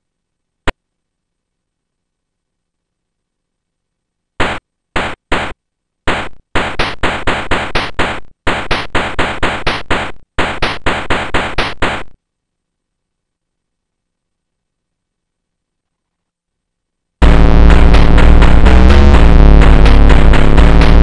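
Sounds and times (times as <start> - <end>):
electronic hi-hat hits: 17.2 - 21.0.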